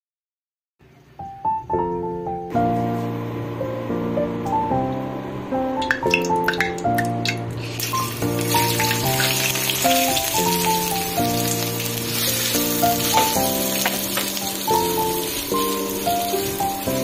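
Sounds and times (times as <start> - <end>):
slow sustained background music: 1.0 - 17.0
onions sizzling in hot oil: 7.6 - 17.0.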